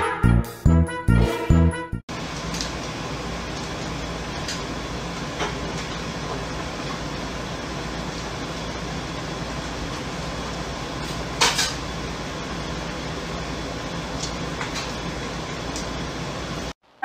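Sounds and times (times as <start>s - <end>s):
kitchen utensils clattering: 11.1s - 11.8s.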